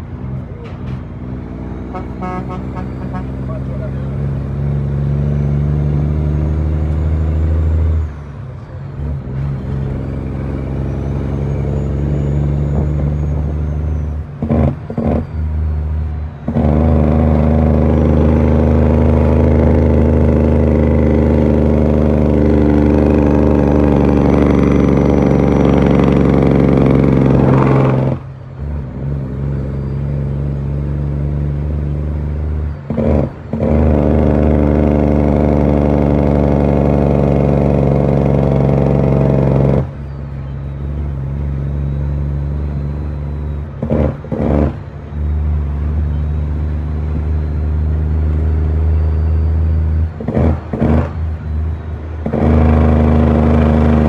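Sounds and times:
truck diesel engine pulling: 0:00.0 - 0:54.0
faint high whistle: 0:40.0 - 0:43.7, 0:46.0 - 0:50.1.

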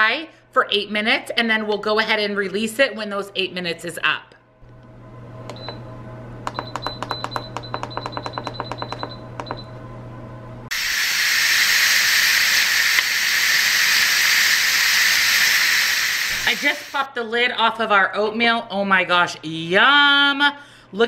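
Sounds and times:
steam venting hiss: 0:10.7 - 0:17.1.

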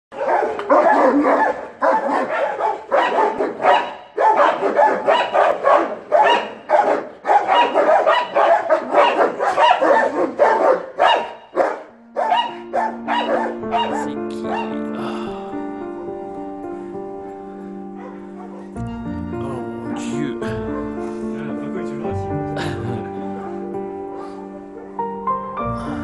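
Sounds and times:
dogs barking: 0:00.1 - 0:15.0, 0:17.9 - 0:18.8, 0:20.6 - 0:21.2
music: 0:07.5 - 0:26.0.

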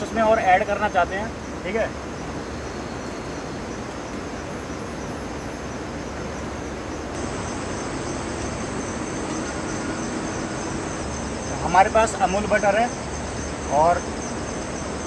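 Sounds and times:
crickets chirring: 0:00.0 - 0:15.0
steady rushing hiss: 0:00.0 - 0:15.0.

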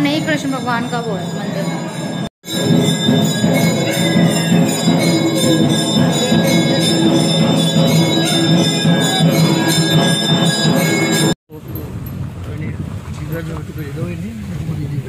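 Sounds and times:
jingling bells: 0:00.0 - 0:11.9
music with steady beat: 0:02.4 - 0:11.4.

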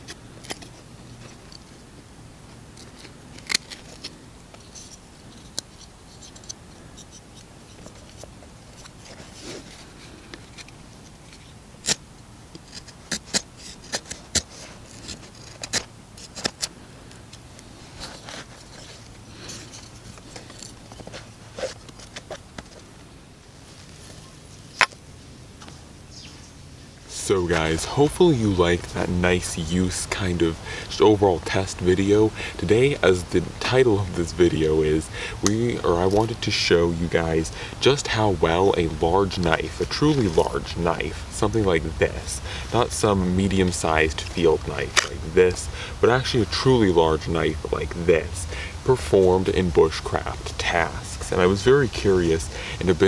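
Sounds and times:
knife carving wood: 0:00.0 - 0:01.7, 0:02.8 - 0:16.8, 0:18.0 - 0:22.7.

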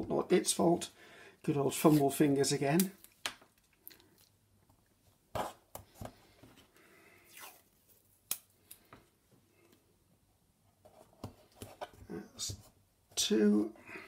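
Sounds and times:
tape tearing and pulling: 0:07.3 - 0:08.5.

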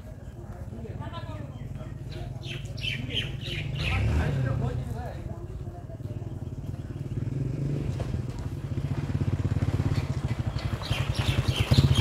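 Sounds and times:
engine putter: 0:06.2 - 0:12.0.

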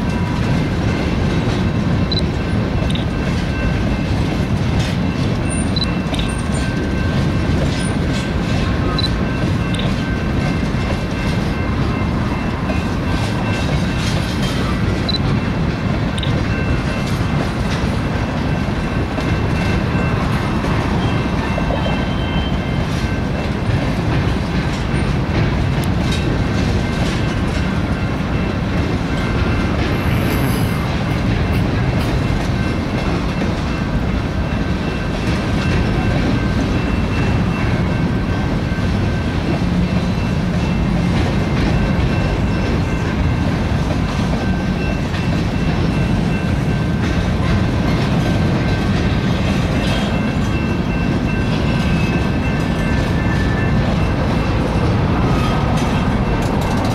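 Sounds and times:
train wheels rumbling on rail: 0:00.0 - 0:56.9
wheels clicking over rail joints: 0:00.0 - 0:56.9
high wheel squeal: 0:20.9 - 0:22.8.

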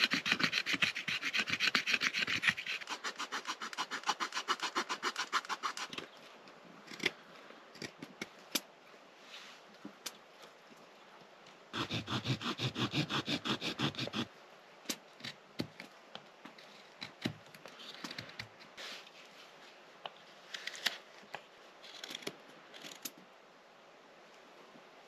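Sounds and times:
saw strokes on wood: 0:00.0 - 0:06.0, 0:11.8 - 0:14.3
knife scraping wood: 0:00.0 - 0:06.1, 0:11.8 - 0:14.3.

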